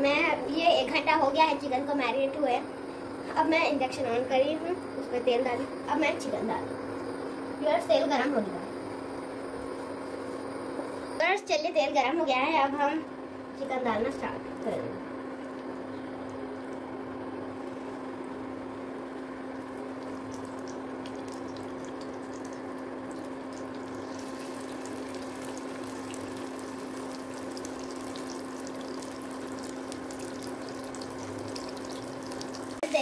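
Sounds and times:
induction cooktop humming: 0.0s - 33.0s
oil crackling and spitting: 19.6s - 32.8s.

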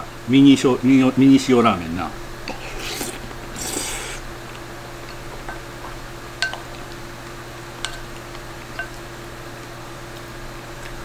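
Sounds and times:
person slurping food: 2.5s - 4.2s
spoon clicking against bowl: 6.4s - 6.7s, 8.8s - 9.0s.

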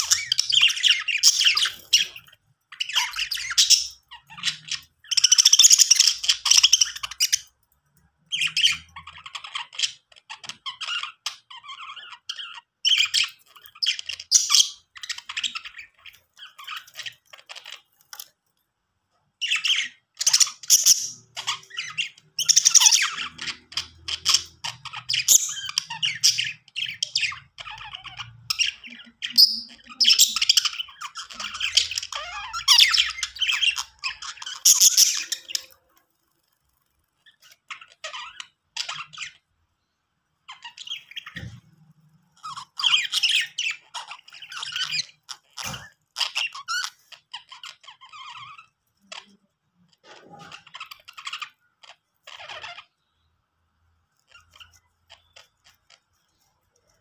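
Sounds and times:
budgerigars chattering: 0.0s - 7.5s, 8.3s - 18.1s, 19.4s - 35.8s.

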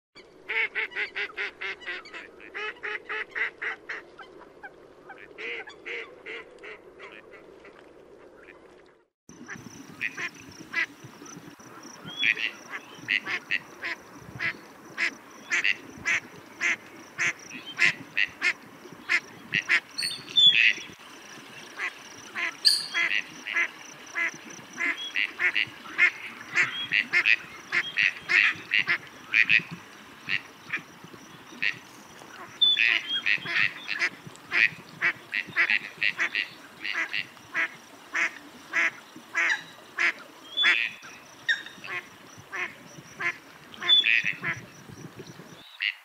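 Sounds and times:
ducks quacking: 9.4s - 20.8s, 21.8s - 44.7s.

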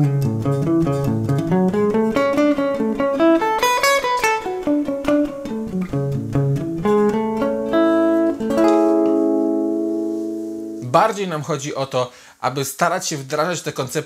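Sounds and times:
electric guitar phrase: 0.0s - 11.0s.

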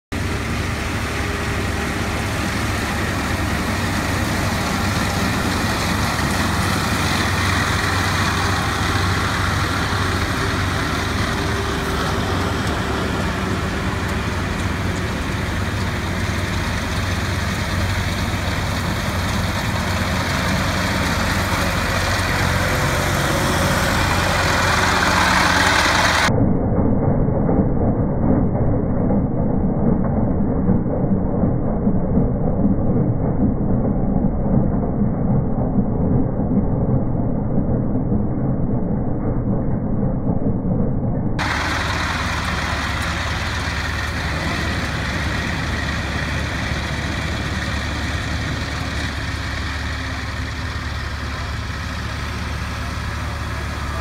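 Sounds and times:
tractor engine running: 0.1s - 26.3s, 41.4s - 54.0s.

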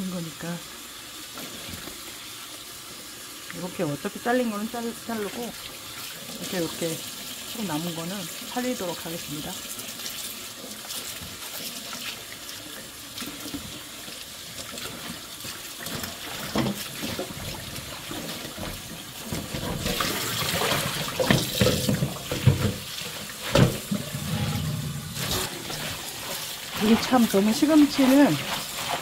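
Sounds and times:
water splashing in bowl: 4.2s - 29.0s
tap running into metal sink: 14.7s - 25.9s
knocks against sink: 21.2s - 22.9s, 23.5s - 24.1s.

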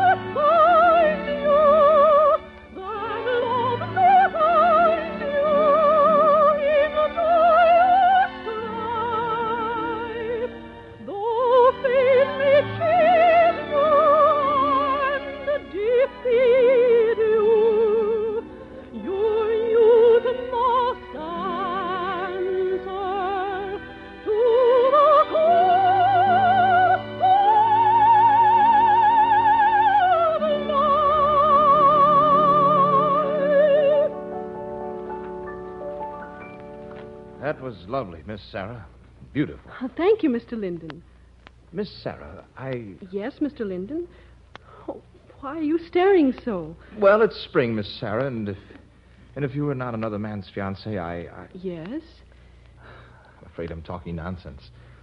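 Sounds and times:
soprano singing operetta melody: 0.0s - 38.8s, 42.1s - 48.8s
instrumental accompaniment: 0.0s - 39.5s.

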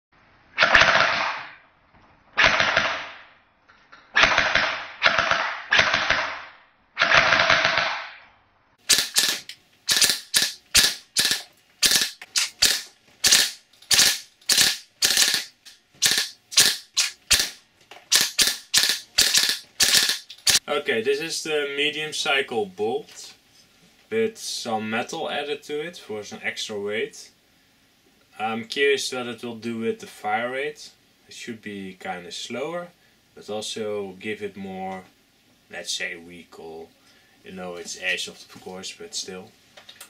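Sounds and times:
airsoft gun firing bursts: 0.6s - 1.5s, 2.4s - 3.2s, 4.2s - 8.1s, 8.8s - 20.6s.

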